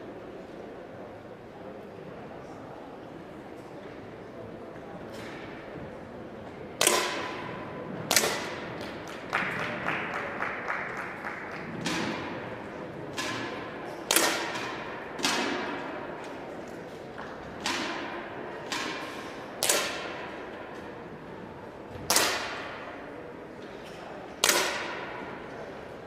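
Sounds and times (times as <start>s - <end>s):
air pistol shots: 6.8s - 7.5s, 8.1s - 8.7s, 13.2s - 15.8s, 17.6s - 20.4s, 22.1s - 22.9s, 24.4s - 25.2s.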